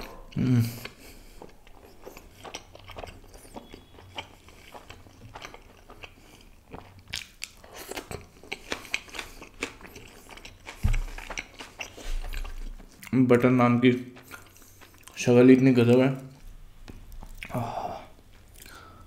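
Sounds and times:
close chewing: 0:00.1 - 0:13.2, 0:14.0 - 0:15.2, 0:18.2 - 0:19.0
raw onion crunching: 0:00.3 - 0:13.2.

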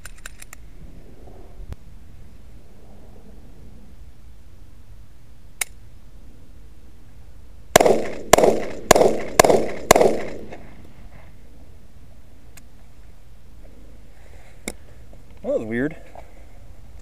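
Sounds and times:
sharp click: 0:00.0 - 0:00.6, 0:05.6 - 0:05.8
pistol shots echoing: 0:07.7 - 0:10.7.

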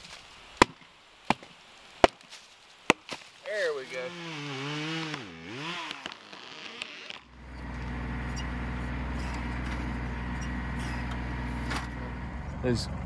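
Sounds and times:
chainsaw revving: 0:03.8 - 0:11.7
tractor diesel engine running: 0:07.2 - 0:13.0.

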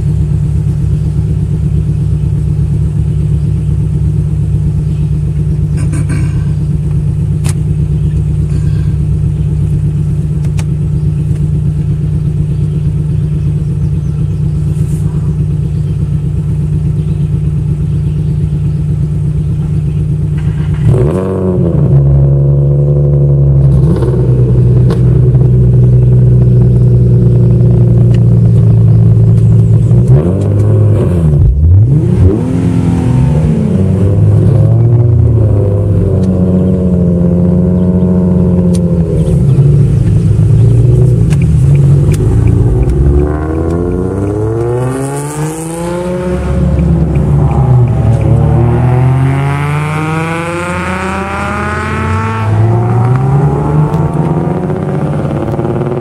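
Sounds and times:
car engine idling: 0:00.0 - 0:56.0
engine revving: 0:19.5 - 0:56.0.

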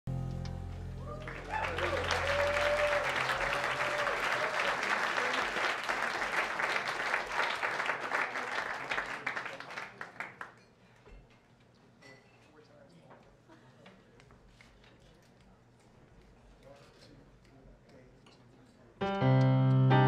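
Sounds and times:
band's low notes: 0:00.1 - 0:02.1
crowd cheering: 0:00.8 - 0:09.6
audience applauding: 0:01.0 - 0:10.6.

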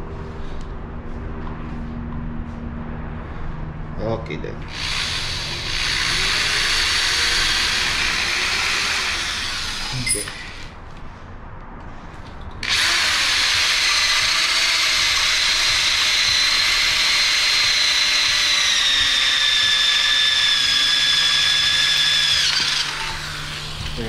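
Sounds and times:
electric drill boring metal: 0:04.7 - 0:10.8, 0:12.6 - 0:24.0.

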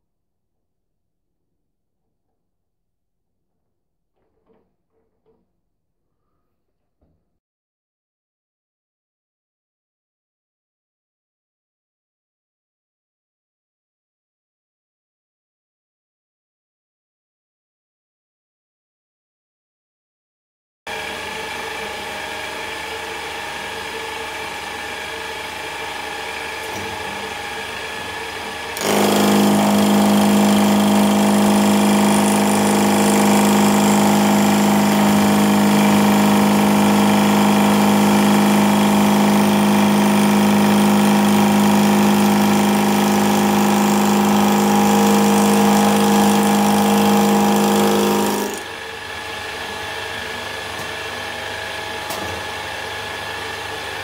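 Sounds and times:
milling machine running: 0:20.9 - 0:54.0
pitched metal cutting hum: 0:20.9 - 0:54.0.

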